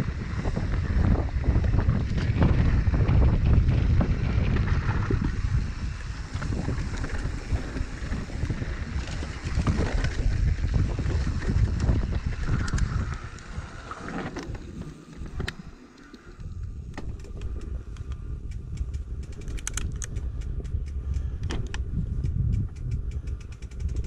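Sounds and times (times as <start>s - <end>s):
bike tyres rumbling: 0.0s - 24.0s
wind buffeting microphone: 0.0s - 24.0s
bike knocks and rattles: 18.5s - 24.0s.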